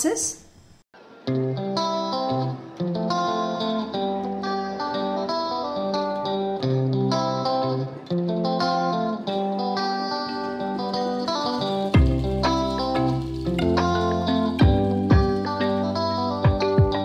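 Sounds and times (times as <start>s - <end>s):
plucked guitar tune: 1.0s - 17.0s.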